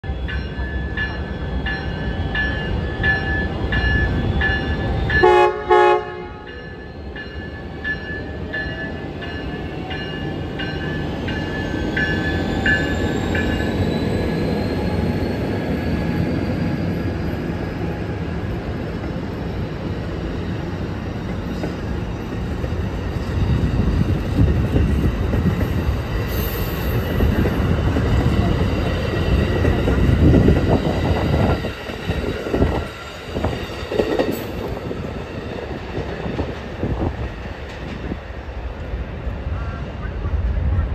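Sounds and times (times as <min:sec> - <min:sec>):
locomotive bell ringing: 0:00.0 - 0:15.4
rising locomotive whine: 0:00.0 - 0:40.9
train cars rumbling on rails: 0:00.0 - 0:40.9
train horn blasts: 0:05.1 - 0:06.6.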